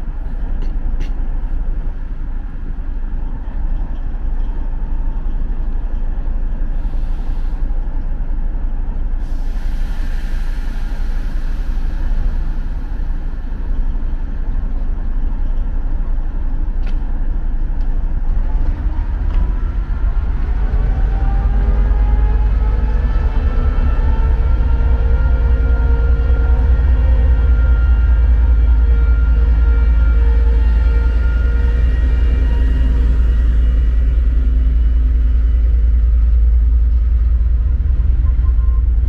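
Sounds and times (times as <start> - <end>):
diesel locomotive rumbling: 0.0 - 39.0
compressed air hissing: 9.2 - 13.3.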